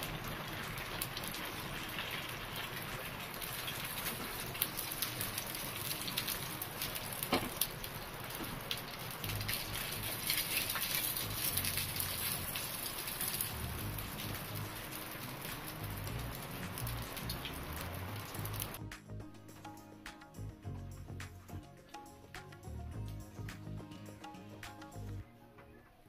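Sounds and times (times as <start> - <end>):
sizzling on a hot pan: 0.0 - 18.8
small crackles as skin chars: 0.0 - 18.8.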